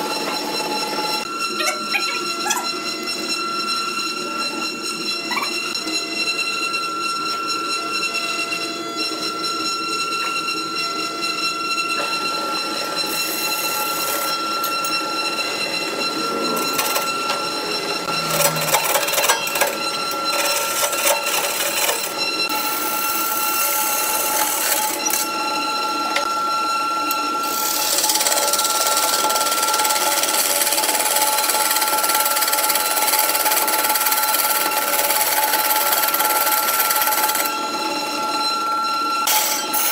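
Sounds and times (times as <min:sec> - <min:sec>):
wood lathe motor whine: 0:00.0 - 0:39.9.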